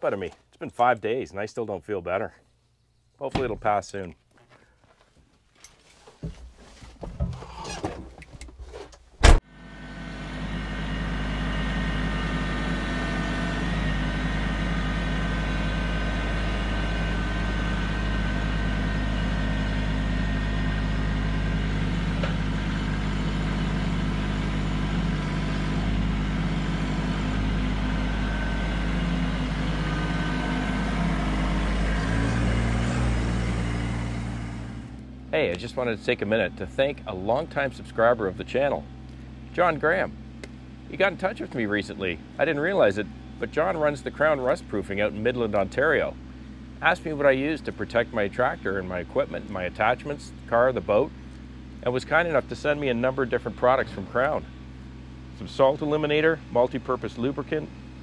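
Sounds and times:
cab door banging shut: 0:09.2 - 0:09.4
diesel tractor engine running: 0:09.2 - 0:58.0.

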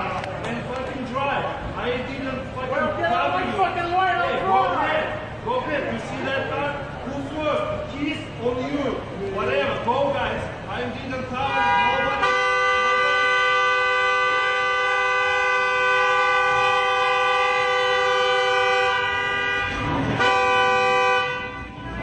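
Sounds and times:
car horn blast: 0:11.4 - 0:22.0.

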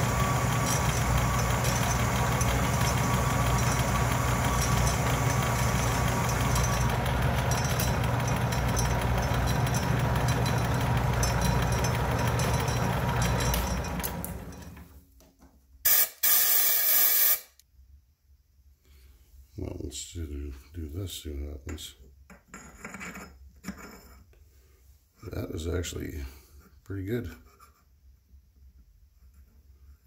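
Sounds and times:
metal lathe running: 0:00.0 - 0:14.9.

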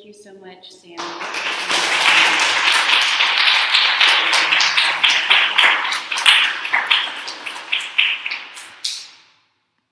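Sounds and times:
audience applauding: 0:01.0 - 0:09.0.

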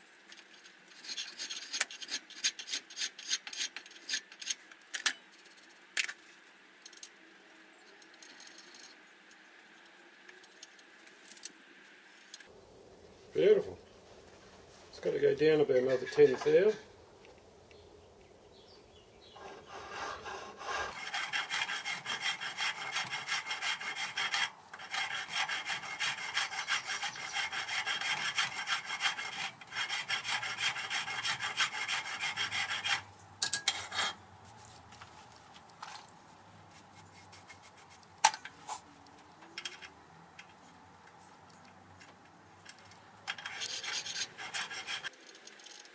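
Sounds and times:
hand file rasping on steel: 0:19.4 - 0:34.2, 0:43.4 - 0:45.2.

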